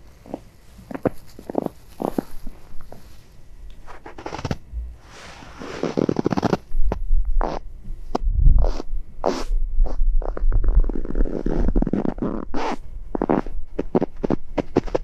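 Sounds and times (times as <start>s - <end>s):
low rumble: 4.6s - 5.6s, 6.7s - 11.9s.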